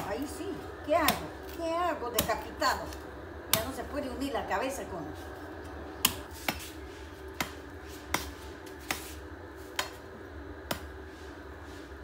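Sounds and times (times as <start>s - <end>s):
low steady hum: 0.0s - 12.0s
machete chopping coconut husk: 1.0s - 2.5s, 3.5s - 3.8s, 6.0s - 6.8s, 7.4s - 9.2s.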